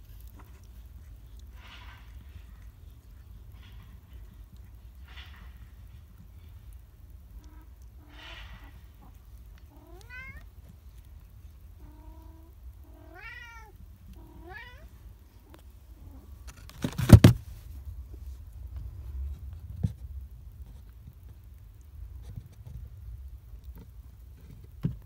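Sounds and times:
cat meowing: 9.7s - 10.5s, 11.8s - 14.9s.

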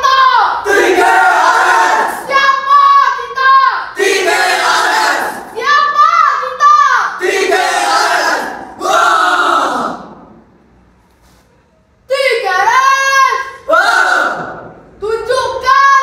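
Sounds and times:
children chanting in unison: 0.0s - 6.0s, 6.6s - 10.1s.

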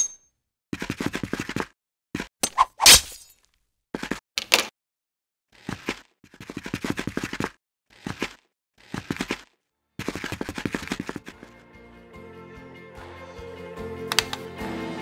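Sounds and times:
music: 11.2s - 15.0s.

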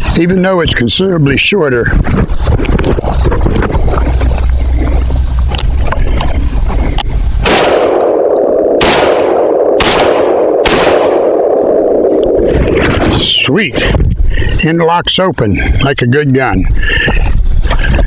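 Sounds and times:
shotgun shots with ringing tail: 7.4s - 12.0s.

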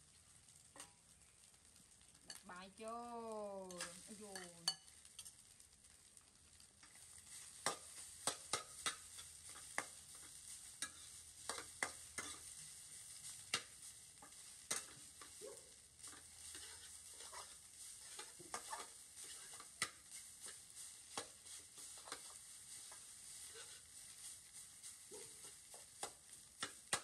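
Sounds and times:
rice sizzling in a wok: 0.0s - 27.0s
metal spatula scraping pan: 7.2s - 15.4s, 16.0s - 27.0s.

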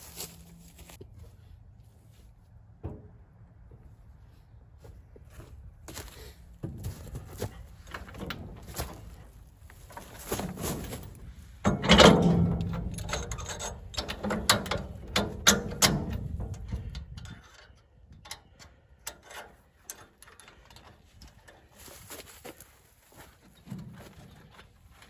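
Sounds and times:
metal clanks of trailer hitch: 6.6s - 9.3s, 9.9s - 22.2s
latch clicks: 11.7s - 21.0s.

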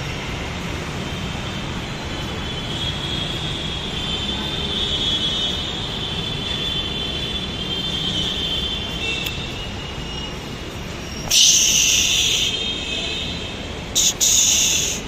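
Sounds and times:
metro train running: 8.5s - 15.0s
loud hiss: 11.2s - 12.7s, 13.9s - 15.0s.

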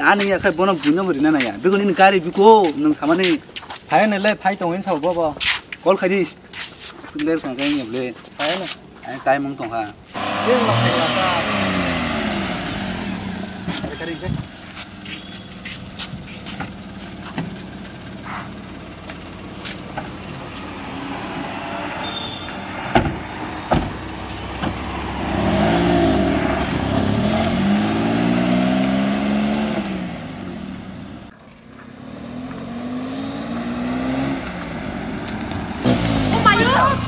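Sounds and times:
vehicle engine revving: 10.1s - 37.0s
sharp knocks: 22.9s - 24.0s.

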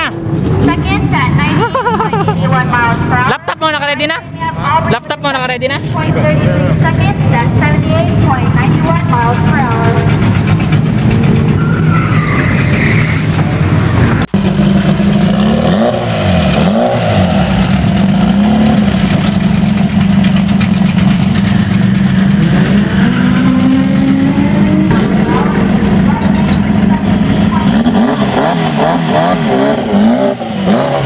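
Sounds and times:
loud car engines idling and revving: 0.0s - 31.0s.

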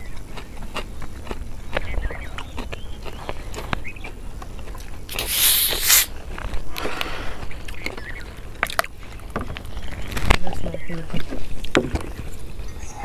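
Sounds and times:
bottle cap twisting open: 5.1s - 6.1s
carbonation hissing: 5.1s - 6.1s.

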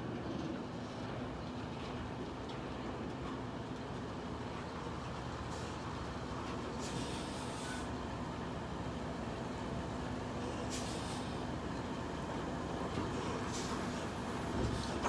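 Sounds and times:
air brake hisses: 6.7s - 7.9s, 10.6s - 11.5s, 13.5s - 15.0s.

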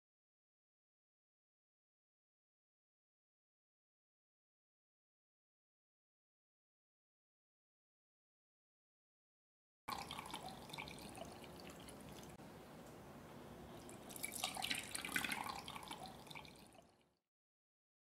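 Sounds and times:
liquid pouring into a pot: 9.9s - 12.4s, 13.8s - 17.2s.

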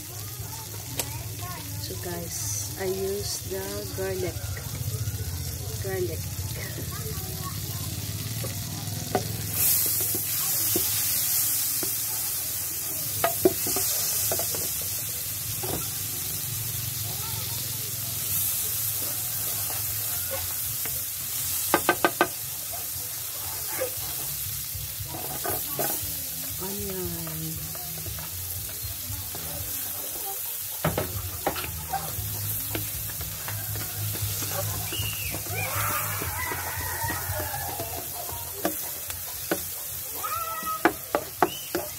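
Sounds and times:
margarine sizzling in a pan: 0.0s - 41.9s
spatula scraping a pan: 9.1s - 12.6s, 18.2s - 22.5s, 23.3s - 26.6s, 27.2s - 41.9s.

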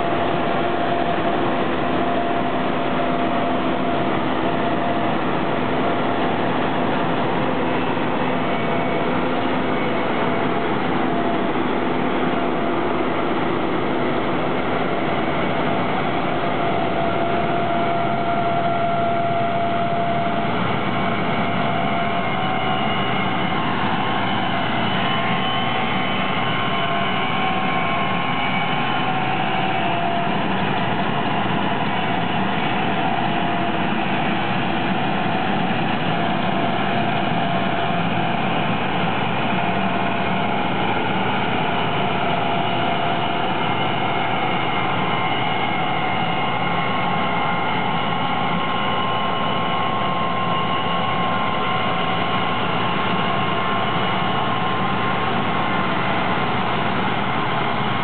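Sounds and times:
combine harvester drone: 0.0s - 58.0s
high machinery whine: 0.0s - 58.0s.

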